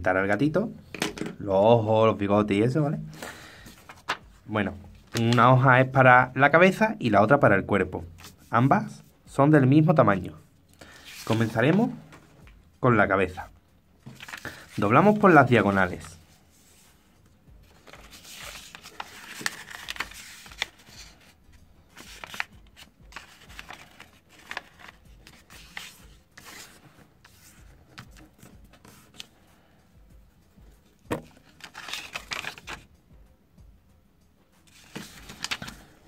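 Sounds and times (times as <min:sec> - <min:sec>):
paper rustling and crinkling: 0:03.6 - 0:04.4, 0:10.8 - 0:12.4, 0:14.0 - 0:17.0, 0:17.6 - 0:29.4, 0:31.1 - 0:32.9, 0:34.7 - 0:36.0.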